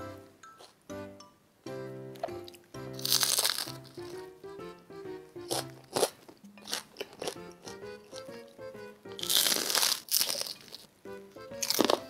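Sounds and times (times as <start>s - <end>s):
soft background music: 0.0s - 12.0s
bread crust crunching: 3.0s - 4.2s, 9.1s - 10.9s, 11.6s - 12.0s.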